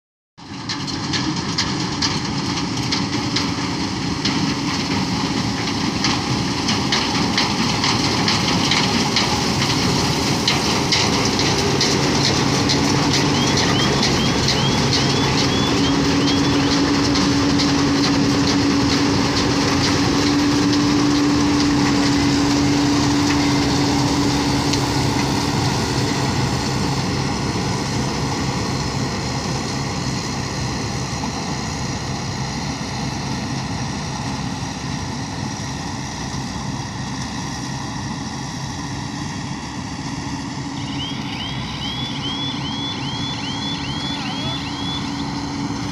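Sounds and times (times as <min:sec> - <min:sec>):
machinery clatter: 0:00.4 - 0:38.5
combine harvester engine drone: 0:00.4 - 0:45.9.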